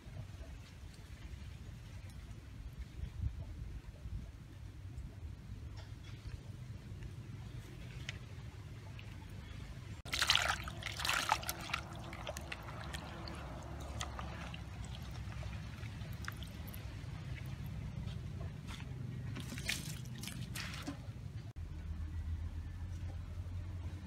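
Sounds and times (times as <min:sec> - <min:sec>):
water splashing in bucket: 0:10.1 - 0:17.6, 0:19.3 - 0:21.1.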